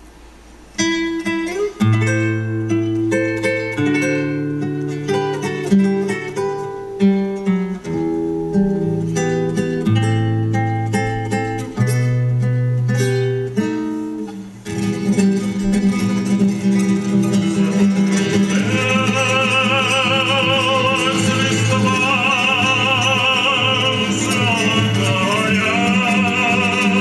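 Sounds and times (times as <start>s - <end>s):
acoustic guitar playing: 0.0s - 27.0s
person singing with vibrato: 18.1s - 27.0s.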